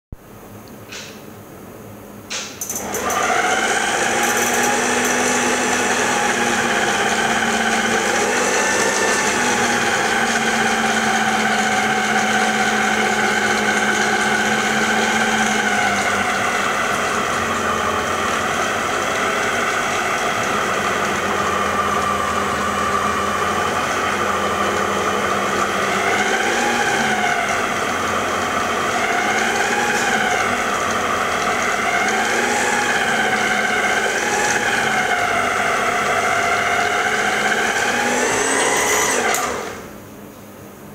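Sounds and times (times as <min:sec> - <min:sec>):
food processor motor whining: 0:02.7 - 0:39.9.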